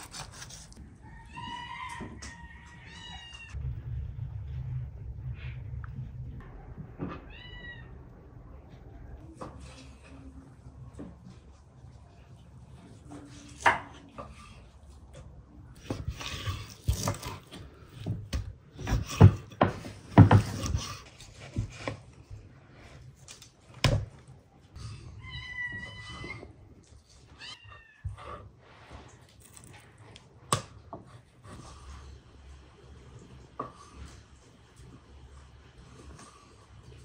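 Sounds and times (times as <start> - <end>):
cat meowing: 7.1 - 8.1.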